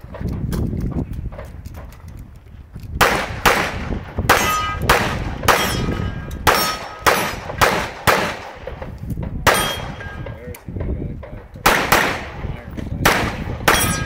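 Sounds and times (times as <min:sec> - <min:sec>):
pistol shots: 0:03.0 - 0:10.4, 0:11.6 - 0:14.0
steel plates clanging: 0:04.3 - 0:04.9, 0:05.5 - 0:07.5, 0:09.5 - 0:10.3, 0:13.7 - 0:14.0.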